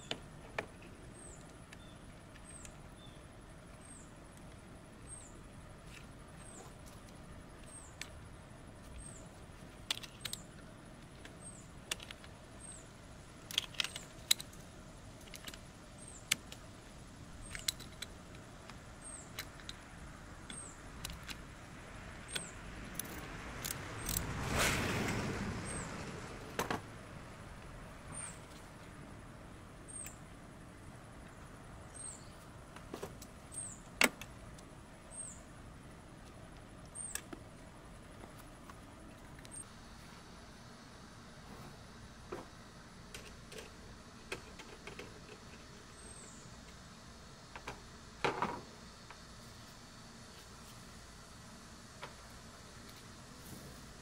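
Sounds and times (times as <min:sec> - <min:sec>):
socket wrench clicking: 0:22.3 - 0:24.2.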